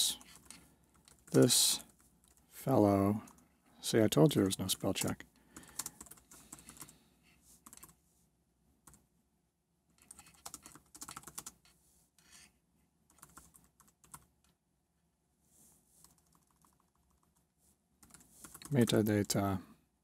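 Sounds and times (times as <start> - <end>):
typing on computer keyboard: 0.0 - 2.4, 5.0 - 6.9, 7.6 - 8.0, 10.0 - 11.7, 13.1 - 14.3, 16.0 - 17.4, 18.0 - 18.8.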